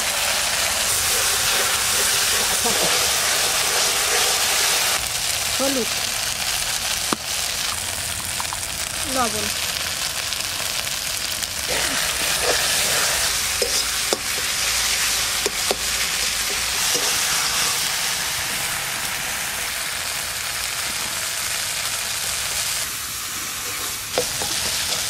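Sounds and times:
spice paste sizzling in oil: 0.0 - 25.0
metal spatula scraping pan: 0.9 - 5.0, 11.7 - 17.9, 23.4 - 25.0.

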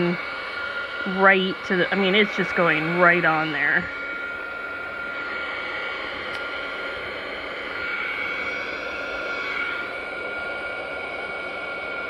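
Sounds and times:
heat gun blowing with whine: 0.0 - 12.0.

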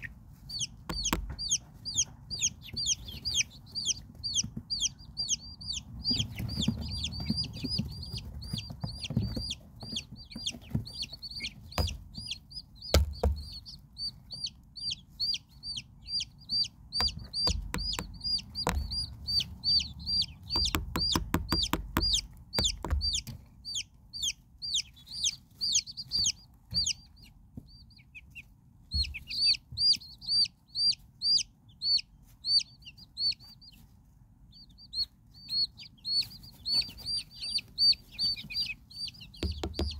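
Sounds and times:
chicks peeping: 0.0 - 39.9
sharp taps: 0.8 - 1.6, 6.1 - 13.8, 17.0 - 23.4, 39.3 - 39.9.

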